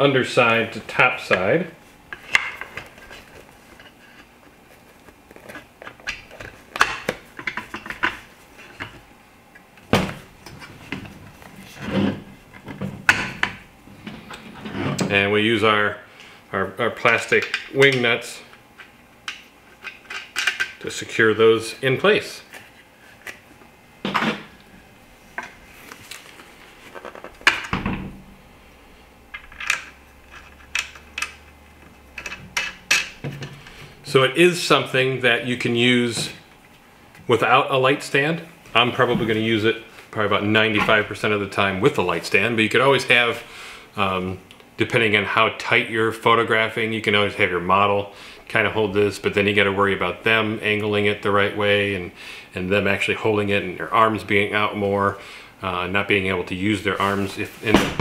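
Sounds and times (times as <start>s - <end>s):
plastic parts clicking and knocking: 19.3s - 20.8s, 29.4s - 33.6s.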